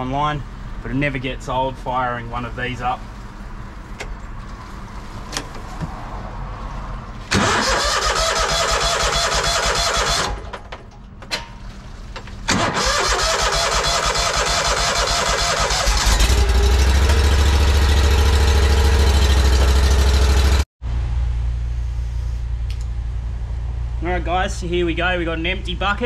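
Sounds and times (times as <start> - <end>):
petrol engine running: 0.5 - 20.6.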